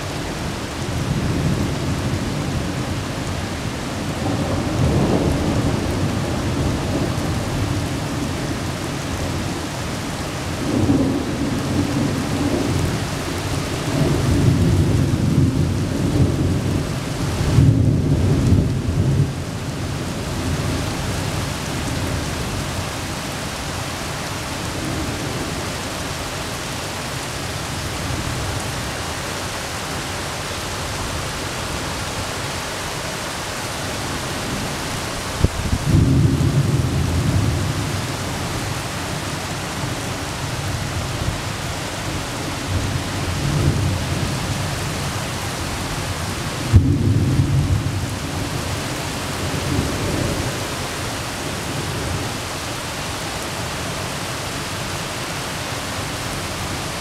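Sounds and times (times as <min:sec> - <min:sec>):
rain hissing: 0:00.0 - 0:57.0
thunder rumbling: 0:34.4 - 0:45.0, 0:46.3 - 0:48.8.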